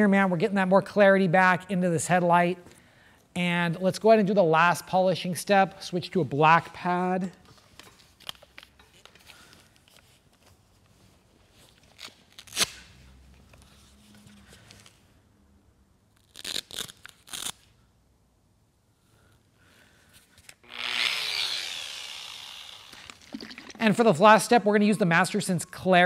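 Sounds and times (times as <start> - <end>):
hook-and-loop ripping: 11.8 - 13.0, 16.1 - 17.8, 20.4 - 23.9
polisher whine spinning down: 20.7 - 23.2.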